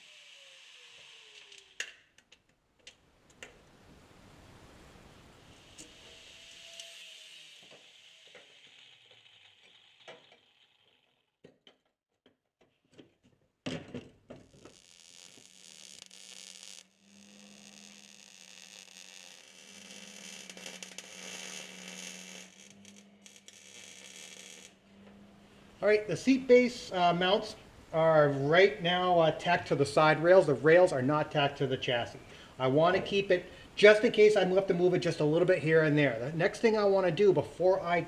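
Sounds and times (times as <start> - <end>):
arc welder crackling hiss: 0.0 - 1.8, 5.2 - 11.1, 14.5 - 24.8.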